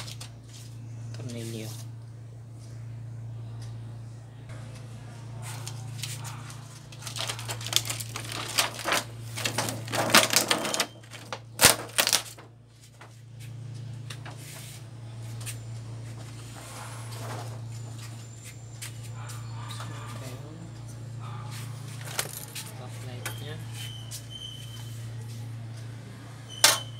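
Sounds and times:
steady low hum: 0.0s - 26.9s
plastic sheet crackling: 5.6s - 12.5s.

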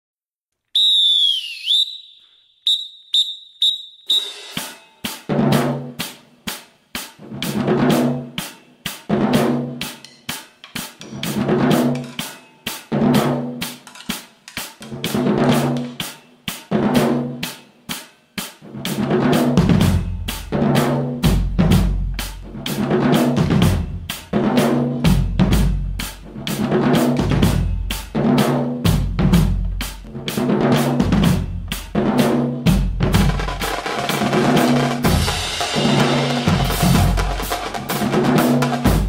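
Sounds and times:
whistle blasts: 0.7s - 5.0s
snare drum rapid strokes: 3.6s - 39.0s
bass drums playing low notes: 28.9s - 30.2s, 31.0s - 33.5s.

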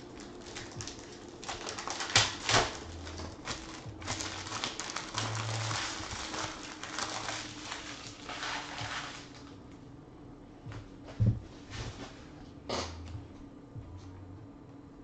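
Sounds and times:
foil wrapper crinkling and tearing: 0.0s - 9.6s.

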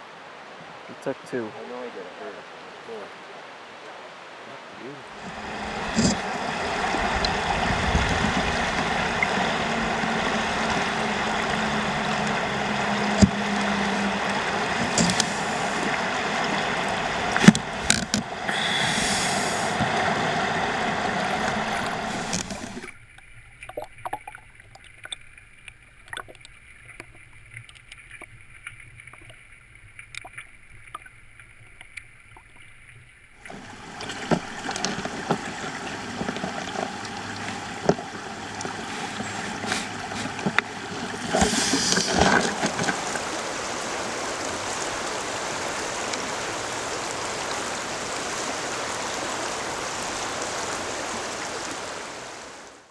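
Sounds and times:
river water rushing over gravel: 0.0s - 32.5s, 33.3s - 52.9s.

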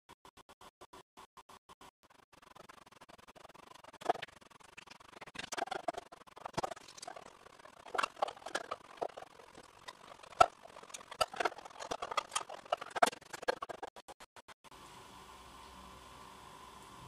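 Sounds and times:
tool cutting plastic cup: 5.4s - 14.0s.

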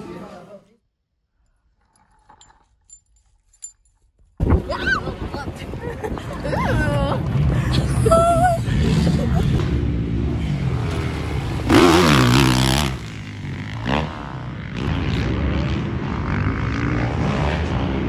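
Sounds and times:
dirt bike engines revving: 4.6s - 18.0s.

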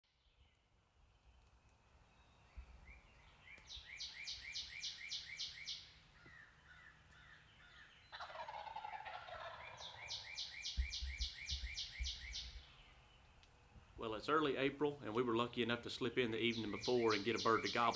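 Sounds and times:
songbird singing: 0.0s - 17.9s
turkey gobbling: 4.1s - 12.6s, 16.5s - 17.9s.

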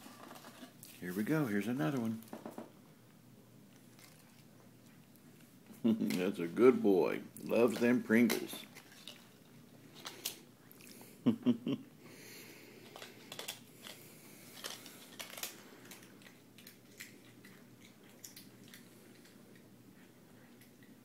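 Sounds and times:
cat crunching a chip: 3.7s - 5.5s, 12.6s - 19.8s.

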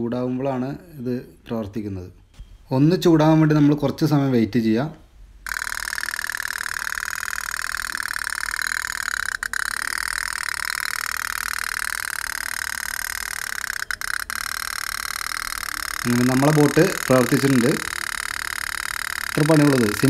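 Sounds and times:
toy steam boat putt-putt: 5.5s - 20.0s.

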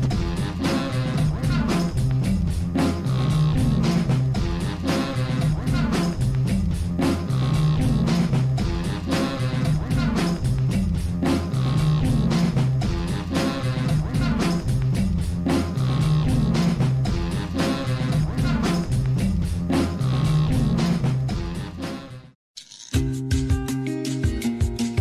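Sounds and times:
rock music with guitar and drums: 23.0s - 25.0s.

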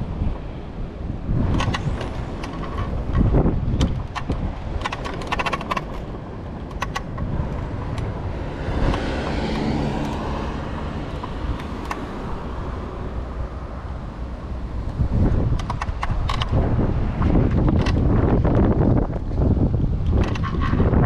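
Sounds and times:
wheels rumbling on asphalt: 0.0s - 21.0s
wind on microphone: 0.0s - 21.0s
scooter clicks and rattles: 1.1s - 13.2s, 14.8s - 21.0s
car passing: 5.9s - 15.6s.

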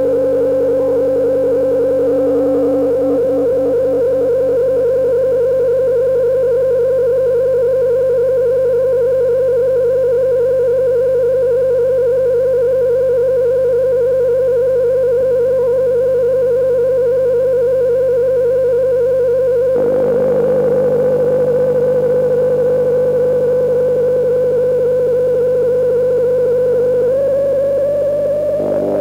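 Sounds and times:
rough noisy synth layer: 0.0s - 4.5s, 28.0s - 29.0s
synthesizer drone wavering: 0.0s - 5.3s, 19.7s - 24.1s, 26.5s - 29.0s.

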